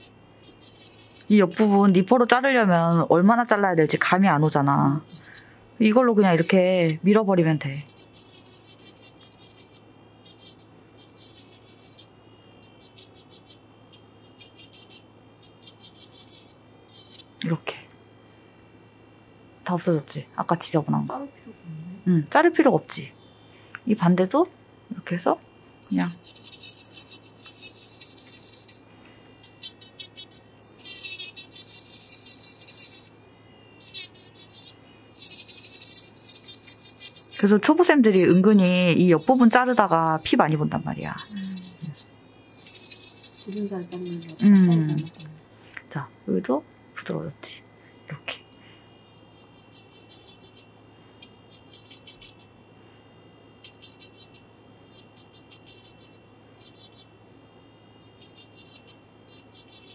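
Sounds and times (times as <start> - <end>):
drill bit grinding toenail: 0.0 - 7.0, 7.6 - 17.5, 25.8 - 45.4, 48.9 - 52.6, 53.5 - 57.2, 57.9 - 59.9
electric nail drill whine: 0.0 - 59.9
motor humming: 0.0 - 59.9.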